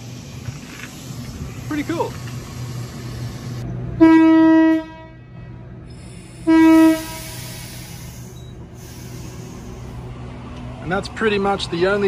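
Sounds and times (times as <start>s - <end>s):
low train hum: 0.0s - 12.0s
train horn blasts: 4.0s - 5.4s, 6.4s - 7.5s.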